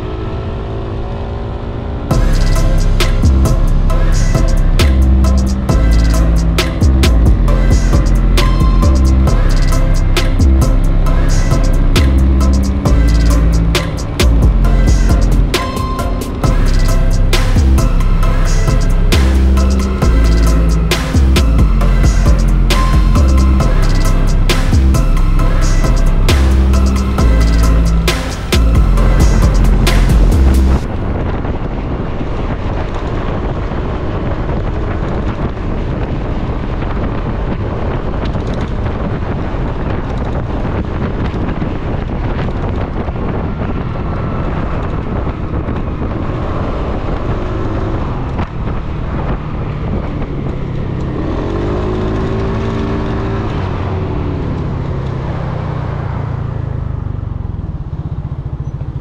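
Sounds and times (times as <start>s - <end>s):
scooter engine running: 0.0s - 33.2s, 36.7s - 59.0s
pitched note: 2.1s - 31.2s
wind rush on microphone: 28.0s - 59.0s.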